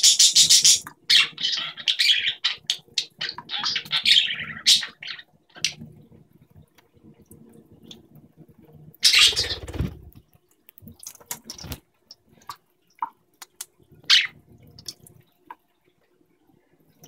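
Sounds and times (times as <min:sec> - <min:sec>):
water drips and splashes: 0:05.3 - 0:09.0, 0:10.0 - 0:17.0
faucet water trickling: 0:10.0 - 0:17.0.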